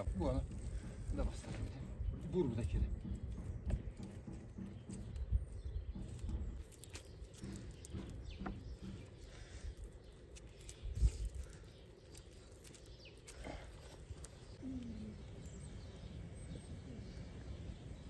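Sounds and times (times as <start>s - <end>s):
wooden poles knocking: 0.7s - 9.4s
faint bird chirps: 8.4s - 18.0s.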